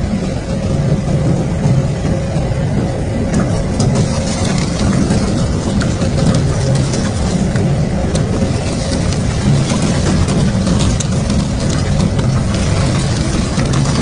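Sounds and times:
shredder droning: 0:03.2 - 0:14.0.

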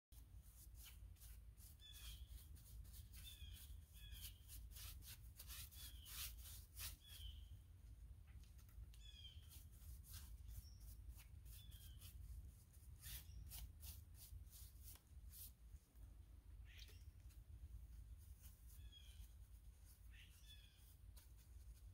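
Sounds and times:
hand tool scratching wood: 0:00.6 - 0:07.2.

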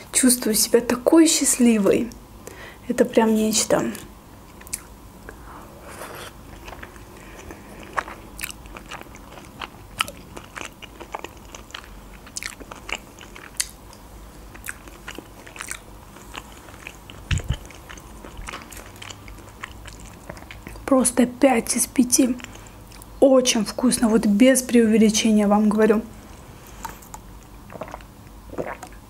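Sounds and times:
person chewing: 0:04.5 - 0:20.9, 0:26.6 - 0:29.0.

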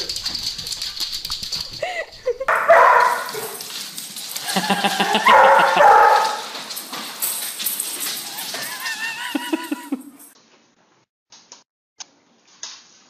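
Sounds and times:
dog barking: 0:02.5 - 0:03.6, 0:05.0 - 0:06.5.

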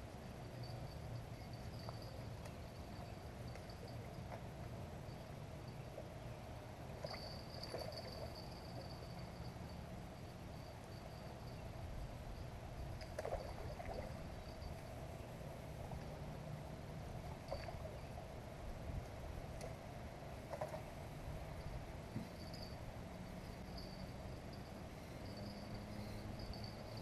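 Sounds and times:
high insect trill: 0:21.6 - 0:27.0.

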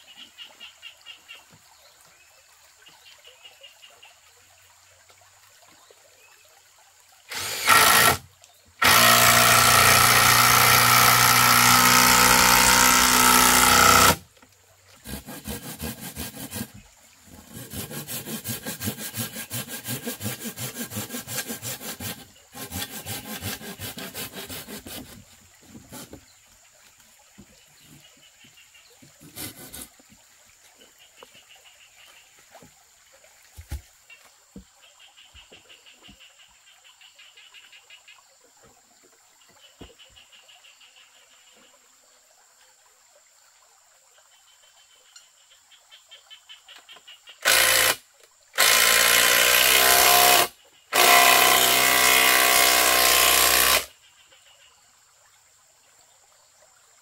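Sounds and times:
cordless drill whining: 0:07.3 - 0:08.2, 0:08.8 - 0:14.2.

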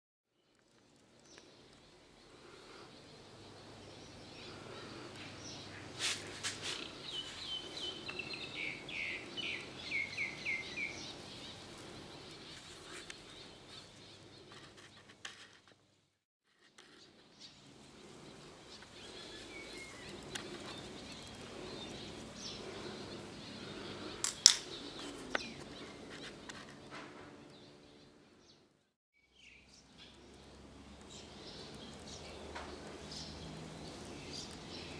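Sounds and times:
small bird chirping: 0:00.4 - 0:15.6, 0:16.8 - 0:28.6, 0:29.2 - 0:34.9.

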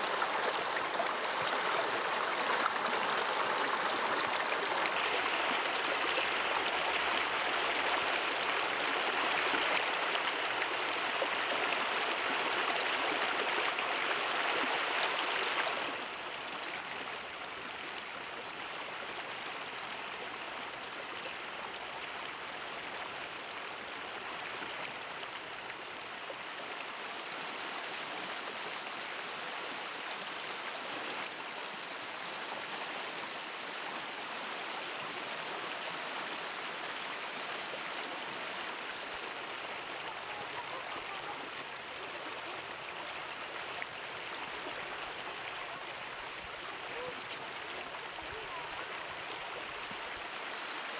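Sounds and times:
river rushing over rocks: 0:00.0 - 0:16.2.

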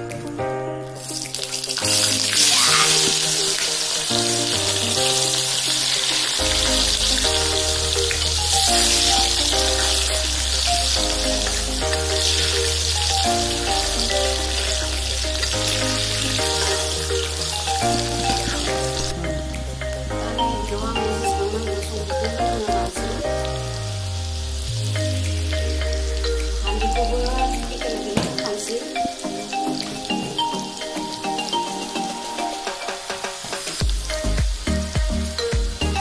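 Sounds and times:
background music: 0:00.0 - 0:36.0
potatoes sizzling in hot oil: 0:00.9 - 0:19.1.

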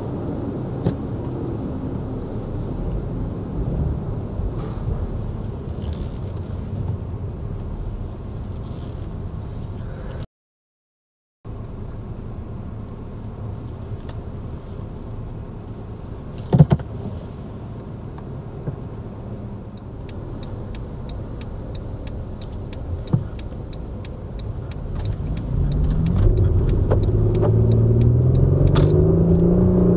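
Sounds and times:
car engine and road rumble: 0:00.0 - 0:10.3, 0:11.5 - 0:29.9
indicator ticking: 0:19.8 - 0:29.0.

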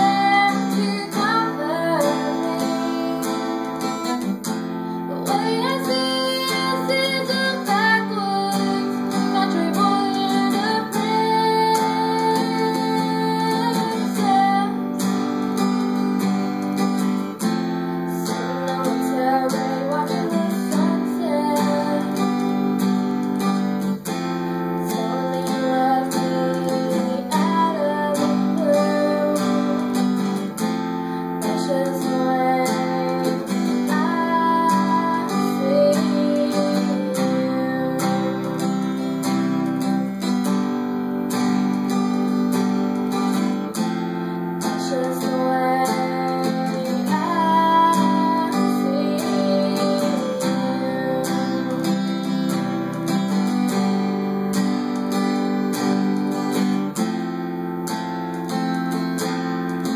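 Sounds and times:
woman singing: 0:00.0 - 0:57.2
acoustic guitar strumming: 0:00.0 - 0:59.9.

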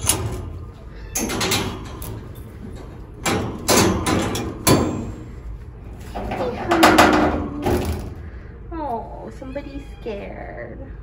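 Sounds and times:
metal cage door clanking: 0:00.0 - 0:05.4, 0:06.0 - 0:08.2.

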